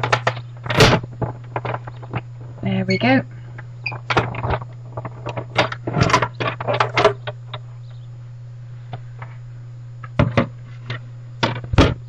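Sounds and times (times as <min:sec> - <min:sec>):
plastic clatter and scraping: 0:00.0 - 0:02.6, 0:03.9 - 0:07.4
steady low hum: 0:00.0 - 0:12.0.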